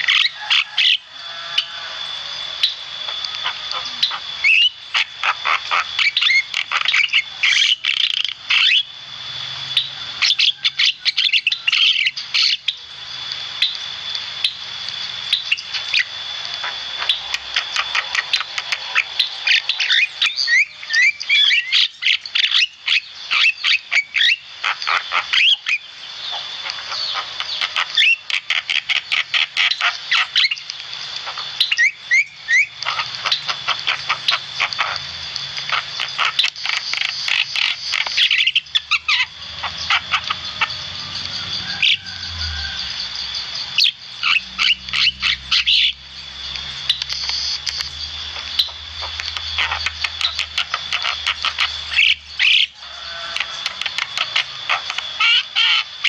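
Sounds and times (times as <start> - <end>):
bird chattering and squawking: 0.0 - 9.0, 9.7 - 12.8, 15.3 - 43.0, 43.6 - 56.0.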